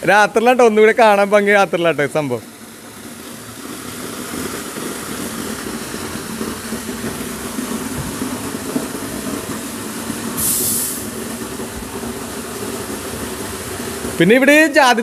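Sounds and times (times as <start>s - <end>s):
fountain water splashing: 0.0s - 15.0s
brief loud hiss: 10.4s - 11.2s.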